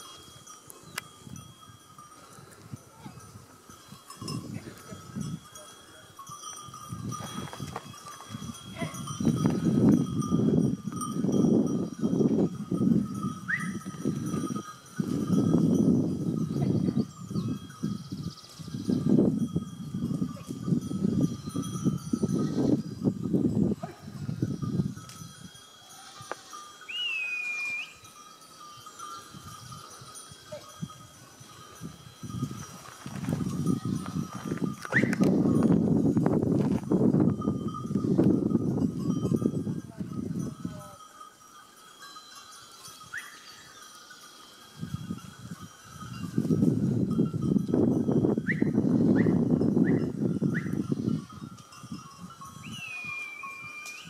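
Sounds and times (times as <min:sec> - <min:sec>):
goat bells clinking: 0:00.0 - 0:54.0
loud high whistle: 0:26.9 - 0:28.0, 0:52.6 - 0:54.0.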